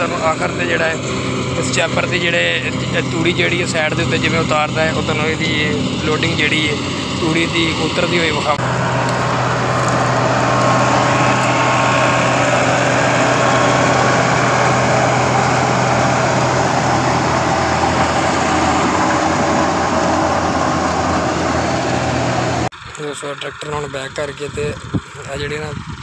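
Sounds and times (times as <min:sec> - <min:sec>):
straw chopper rotor whirring: 0:00.0 - 0:26.0
tractor diesel engine running: 0:00.0 - 0:26.0.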